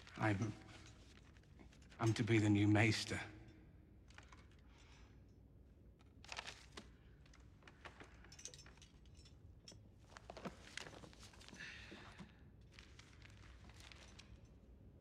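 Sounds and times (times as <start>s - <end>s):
paper rustling: 0.0s - 2.0s, 6.1s - 8.2s, 10.0s - 14.7s
low room hum: 0.0s - 15.0s.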